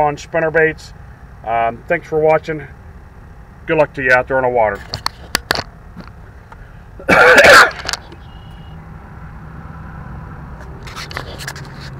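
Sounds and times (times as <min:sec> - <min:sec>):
man clearing throat: 0:07.0 - 0:08.0.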